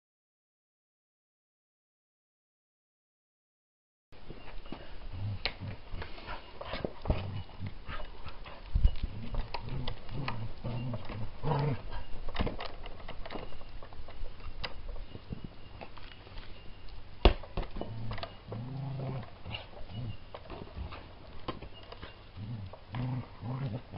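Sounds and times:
wooden parts creaking: 0:05.6 - 0:23.9.

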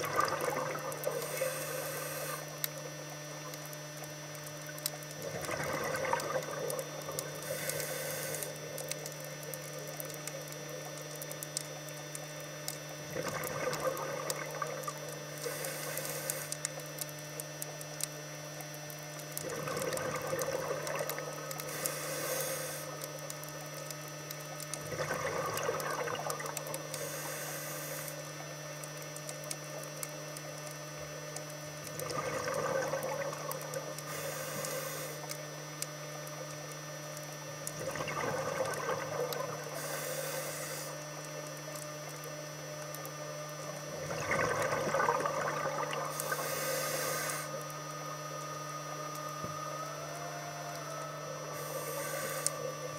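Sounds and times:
regulator bubbling gurgle: 0:00.0 - 0:52.9
steady low hum: 0:00.0 - 0:52.9
regulator sharp hiss: 0:01.2 - 0:02.5, 0:15.4 - 0:16.6, 0:21.7 - 0:23.0, 0:27.0 - 0:28.2, 0:34.1 - 0:35.3, 0:39.8 - 0:41.0, 0:46.1 - 0:47.6, 0:51.6 - 0:52.8.

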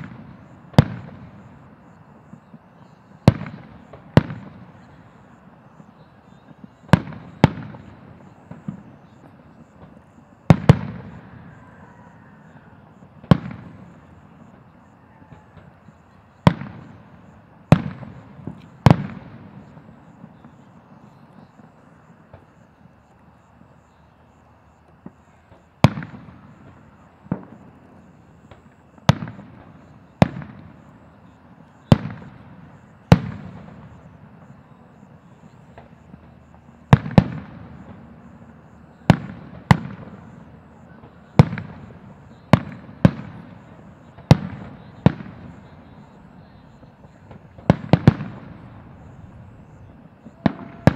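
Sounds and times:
fireworks booming: 0:00.0 - 0:50.9.

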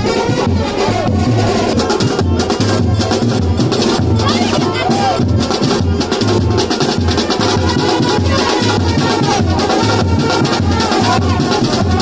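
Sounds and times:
loud drum and bass music: 0:00.0 - 0:12.0.

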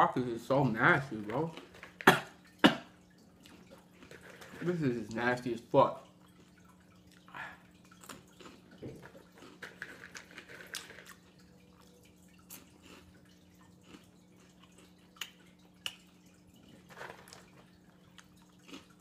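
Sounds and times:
faint steady hum: 0:00.0 - 0:19.0
crunchy snack chewing: 0:08.0 - 0:11.3, 0:12.5 - 0:13.1, 0:13.8 - 0:16.0, 0:17.0 - 0:19.0.

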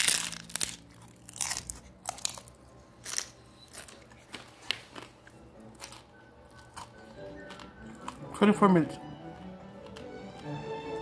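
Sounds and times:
crunchy chewing close to microphone: 0:00.0 - 0:08.5.

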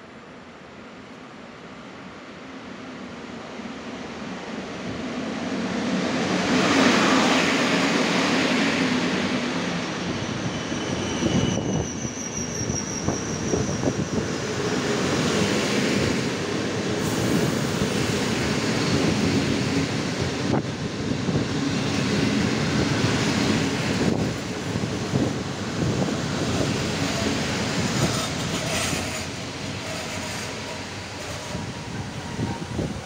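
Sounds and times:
electric locomotive passing rumble: 0:03.6 - 0:33.0
thin high brake squeal: 0:10.2 - 0:14.3, 0:28.0 - 0:31.7.

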